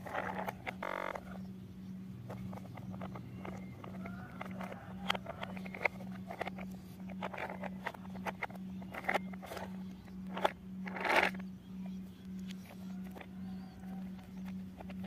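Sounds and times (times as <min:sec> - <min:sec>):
plastic toy scraping: 0:00.0 - 0:01.4, 0:02.2 - 0:11.4
plastic toy clicks and knocks: 0:02.2 - 0:11.4.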